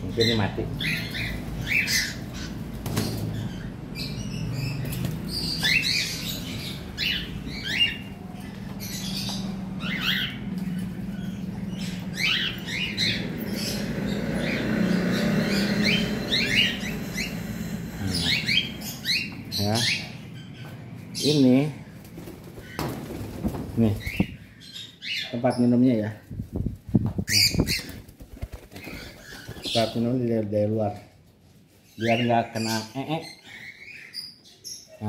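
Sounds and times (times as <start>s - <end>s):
cockatiels chirping and squawking: 0.0s - 21.7s, 27.2s - 30.2s, 31.8s - 35.0s.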